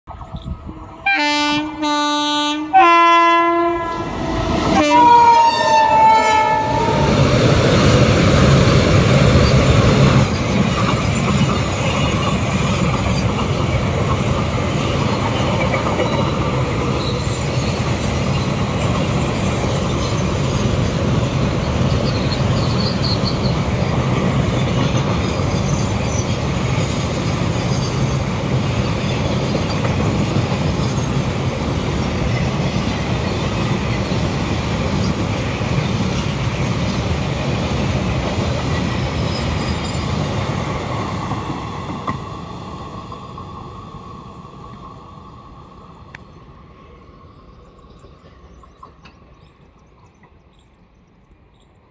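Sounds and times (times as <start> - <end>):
train wagons rumbling and clacking: 0.1 - 51.9
locomotive horn blasts: 1.0 - 4.0, 4.7 - 7.2.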